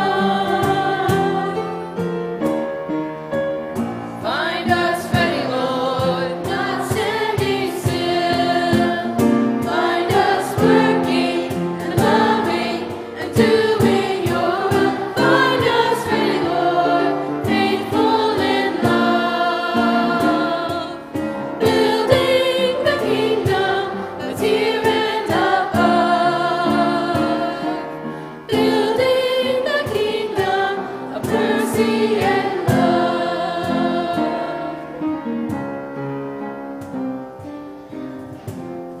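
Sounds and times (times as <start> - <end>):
children's choir singing a hymn: 0.0 - 2.6, 3.7 - 35.7
strummed instrumental accompaniment: 0.0 - 27.9.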